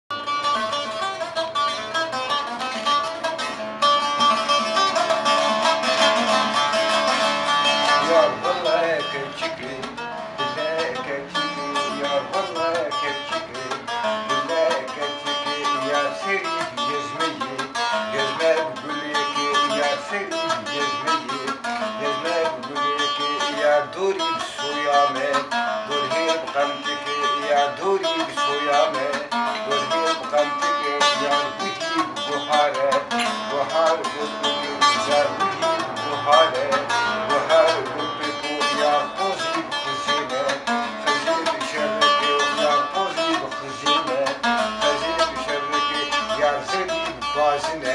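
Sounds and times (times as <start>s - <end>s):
saz playing rapid plucked notes: 0.1s - 47.9s.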